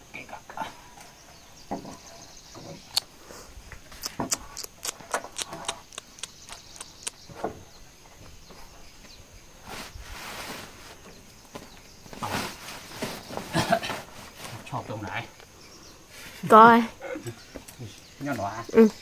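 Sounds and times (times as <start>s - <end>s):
plastic mat rustling: 9.6s - 11.1s, 12.1s - 14.8s.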